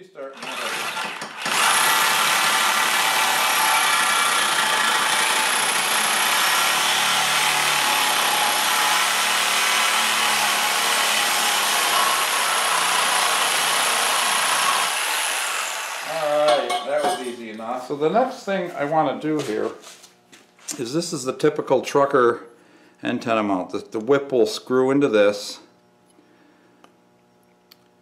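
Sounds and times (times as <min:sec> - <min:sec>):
reciprocating saw cutting metal pipe: 0:00.4 - 0:17.4.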